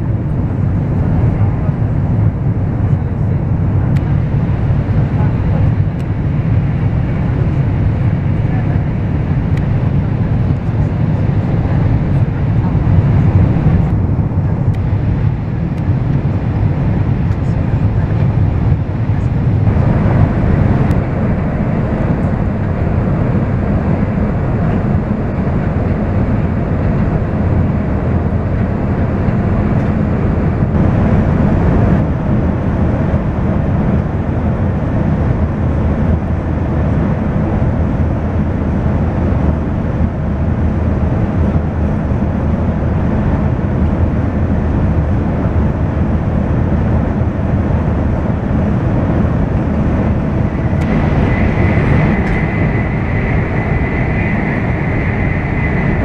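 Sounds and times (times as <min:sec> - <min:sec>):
train interior rumble and hiss: 0:00.0 - 0:56.0.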